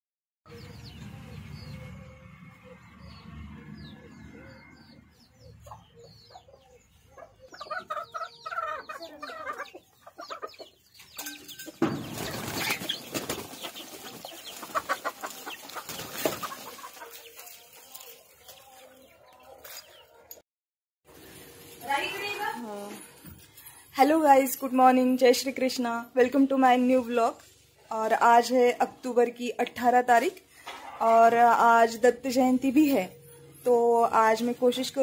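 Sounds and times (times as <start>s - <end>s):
chicks peeping: 0.5s - 20.3s
hen clucking: 5.5s - 18.6s.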